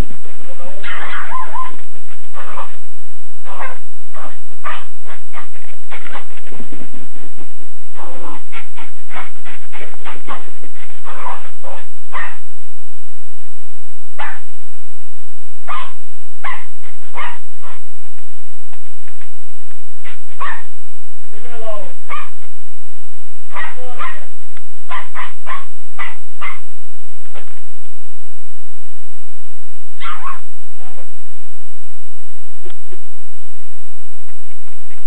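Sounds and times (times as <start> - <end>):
puppy barking: 0.6 - 2.8, 3.4 - 6.7, 8.0 - 12.5, 14.2 - 14.5, 15.7 - 17.9, 20.0 - 20.8, 21.4 - 22.5, 23.5 - 24.3, 24.9 - 26.7, 30.0 - 31.0.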